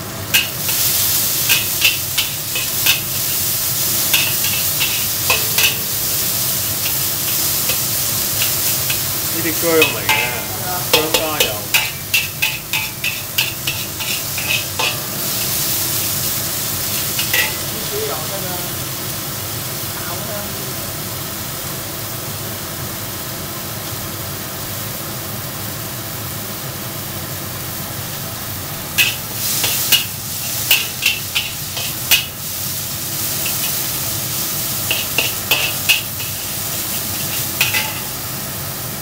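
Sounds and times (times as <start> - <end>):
ginger sizzling in oil: 0.0 - 39.0
spatula scraping a wok: 0.3 - 17.7, 28.9 - 38.3.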